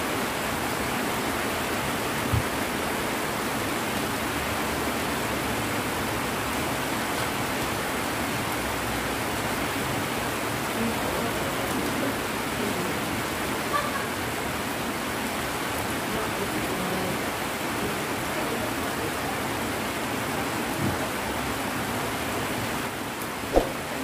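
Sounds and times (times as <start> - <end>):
heavy rain falling: 0.0 - 24.0
sharp knock: 23.5 - 23.9.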